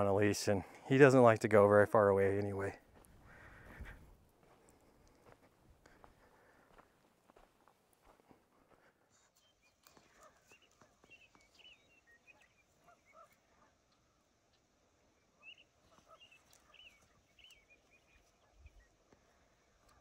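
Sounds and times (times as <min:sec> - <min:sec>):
faint bird chirping: 0:08.7 - 0:20.0.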